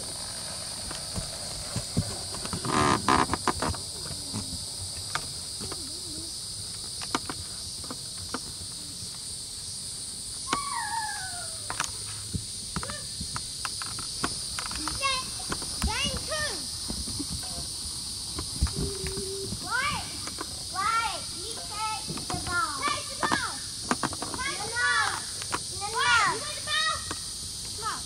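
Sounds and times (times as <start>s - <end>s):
horse hooves on grass: 0.0s - 6.2s, 12.2s - 24.9s
insects chorus: 0.0s - 28.0s
falling whistled call: 10.4s - 11.7s.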